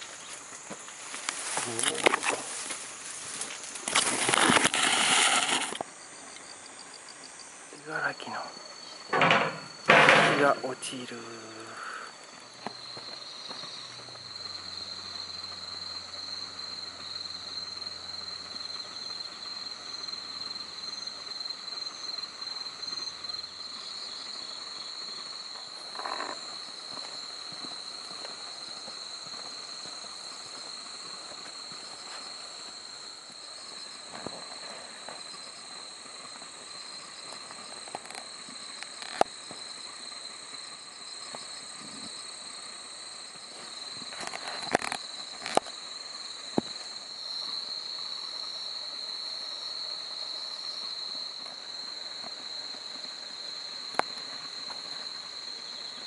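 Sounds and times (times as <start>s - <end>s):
insects trilling: 0.0s - 56.0s.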